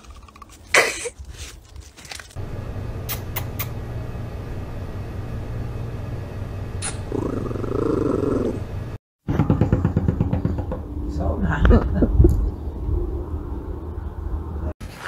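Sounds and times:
steady low hum: 2.4s - 9.0s.

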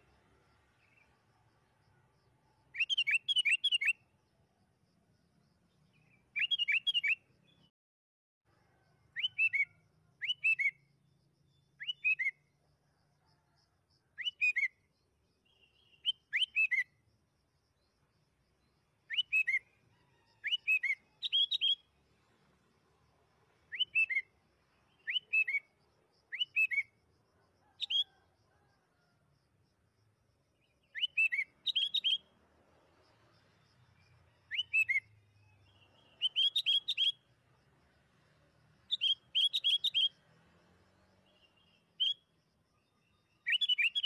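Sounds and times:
bird singing whistled phrases: 2.8s - 4.0s, 6.4s - 7.2s, 9.2s - 10.8s, 11.8s - 12.4s, 14.2s - 14.8s, 15.6s - 16.9s, 19.1s - 19.7s, 20.4s - 21.8s, 23.7s - 24.3s, 25.0s - 25.7s, 26.3s - 26.9s, 30.9s - 32.2s, 34.5s - 35.1s, 35.8s - 37.2s, 38.9s - 40.2s, 43.4s - 44.0s.

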